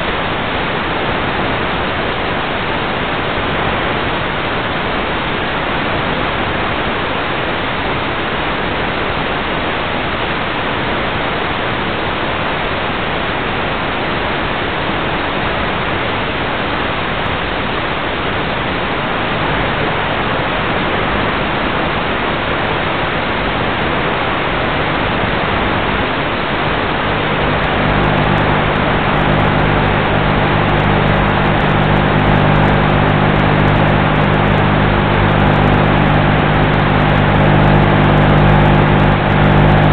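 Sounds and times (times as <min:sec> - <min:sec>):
low pitched hum: 0:26.4 - 0:39.9.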